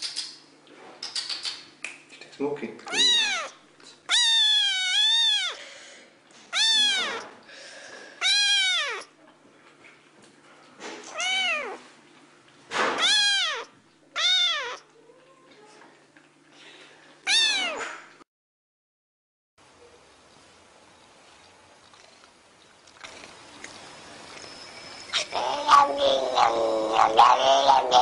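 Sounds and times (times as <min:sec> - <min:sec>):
kitten meowing: 0:02.9 - 0:05.6, 0:06.5 - 0:07.3, 0:08.2 - 0:09.1, 0:11.1 - 0:11.8, 0:13.0 - 0:14.9, 0:17.3 - 0:17.9.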